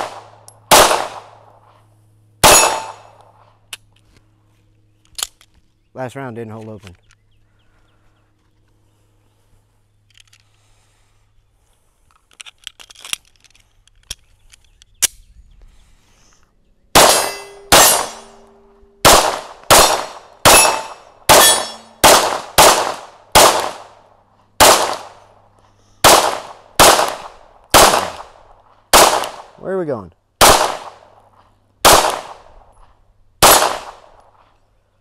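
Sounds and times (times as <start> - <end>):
pistol shots: 0.0 - 1.4, 2.4 - 3.2, 16.9 - 24.0, 24.6 - 25.3, 26.0 - 29.6, 30.4 - 31.2, 31.8 - 32.5, 33.4 - 34.3
pistol handling clicks: 5.0 - 5.6.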